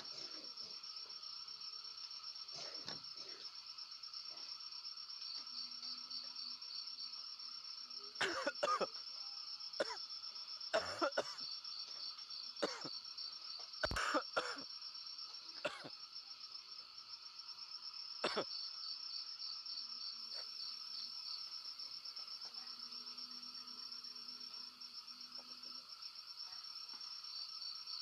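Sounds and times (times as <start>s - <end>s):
night insects chirping: 0.0s - 28.0s
man coughing: 8.2s - 8.9s, 10.8s - 11.4s.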